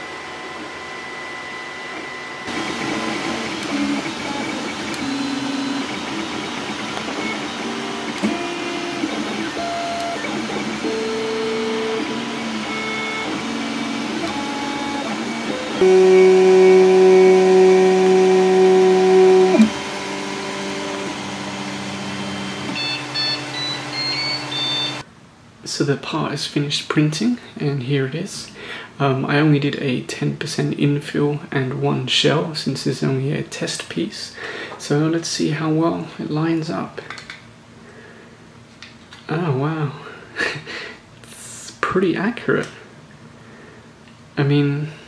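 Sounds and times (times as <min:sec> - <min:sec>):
stepper motors whining: 0:00.0 - 0:25.0
short high beeps: 0:22.8 - 0:25.0.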